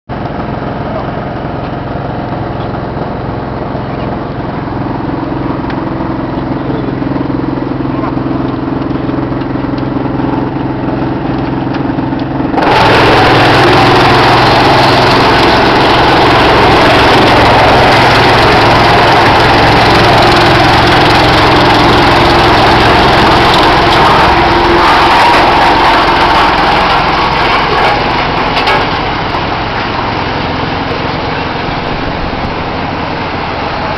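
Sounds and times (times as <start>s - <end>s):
wood chipper running: 0.1s - 33.9s.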